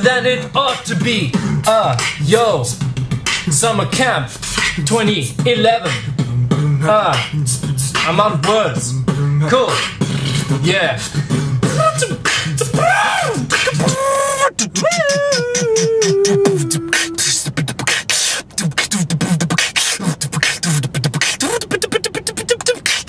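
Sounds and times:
beatboxing: 0.0 - 23.0.

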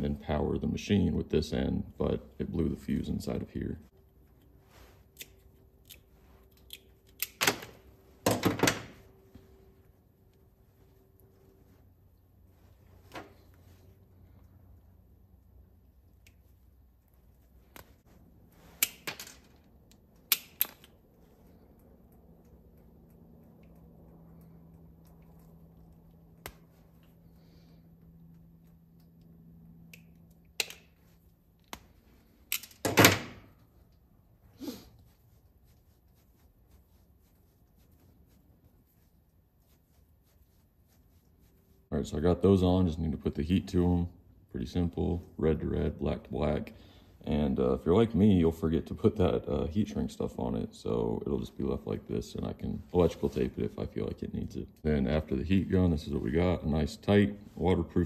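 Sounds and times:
wire cutters snapping: 18.8 - 21.0, 32.5 - 33.0
wire crimper clicks and snaps: 19.9 - 21.0, 29.9 - 30.9, 32.5 - 32.8.

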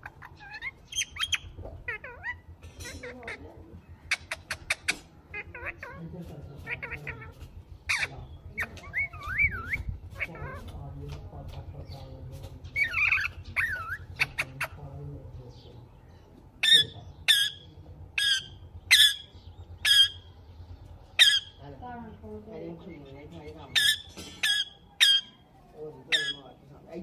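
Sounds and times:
parakeets chirping and whistling: 0.0 - 3.4, 6.6 - 10.7, 11.8 - 14.9, 16.6 - 21.6, 22.8 - 26.6
parakeet harsh squawks: 4.0 - 6.0, 6.6 - 10.6, 16.6 - 20.3, 21.1 - 21.6, 23.7 - 25.4, 26.1 - 26.5.

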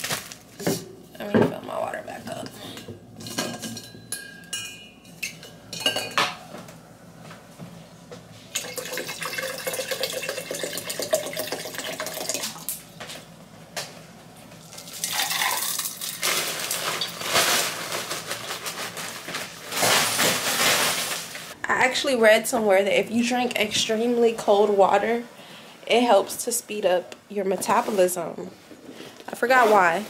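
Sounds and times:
plastic bag rustling: 0.0 - 0.8, 15.1 - 21.6, 29.3 - 30.0
water pouring into tumbler: 8.6 - 12.7, 14.8 - 18.7.

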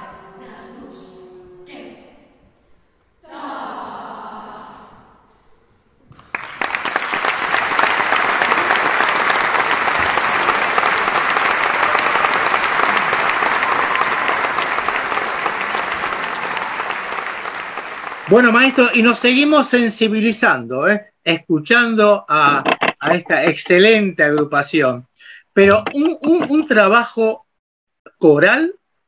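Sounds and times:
audience applause: 6.1 - 19.2.

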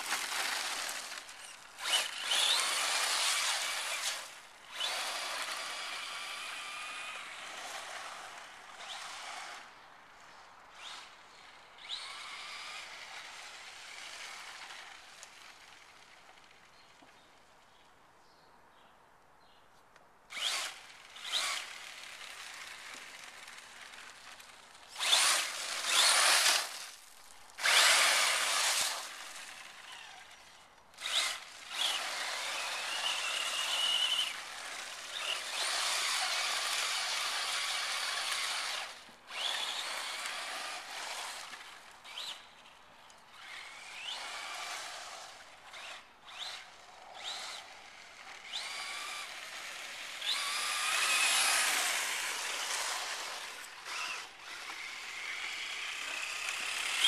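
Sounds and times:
tyre noise on asphalt: 0.0 - 5.0
electric motor whining: 0.0 - 7.4, 20.3 - 22.2, 24.9 - 26.8, 27.6 - 30.2, 31.0 - 42.4, 45.7 - 57.0.

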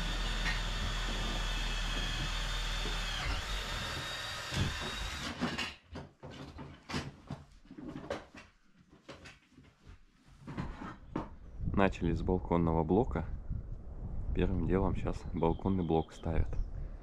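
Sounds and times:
power tool motor whining: 0.0 - 5.5.

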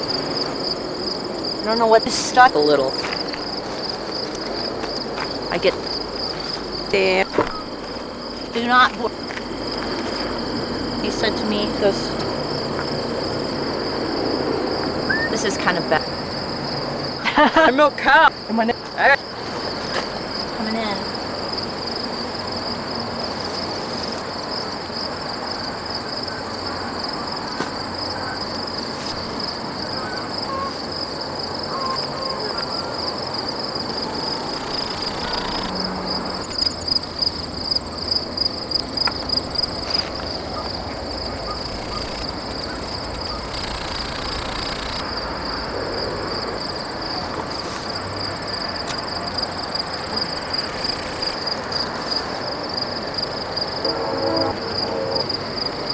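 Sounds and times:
crickets trilling: 0.0 - 55.9
steady noisy background: 0.0 - 55.9
loud pulses: 53.7 - 55.3.

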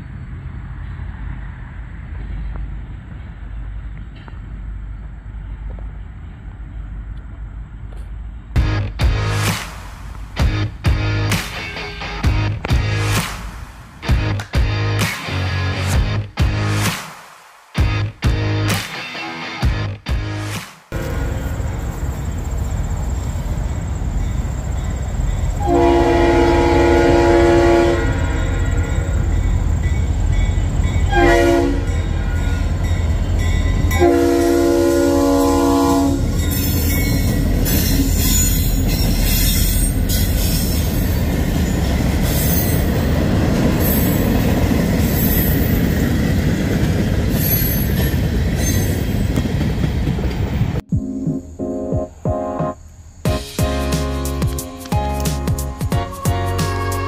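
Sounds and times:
locomotive air horn: 21.0 - 21.6, 25.6 - 29.2, 31.1 - 32.4, 33.9 - 36.4, 55.9 - 57.0
locomotive low rumble: 21.0 - 31.2
train wheels clattering on rails: 36.2 - 50.8.

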